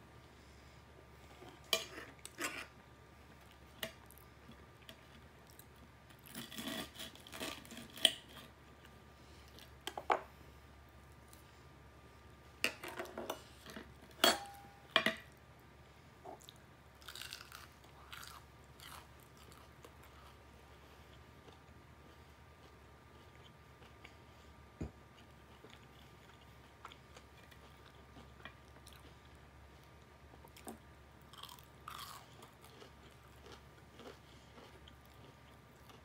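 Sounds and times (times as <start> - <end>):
chewing and crunching fried food: 1.2 - 10.0, 16.3 - 36.0.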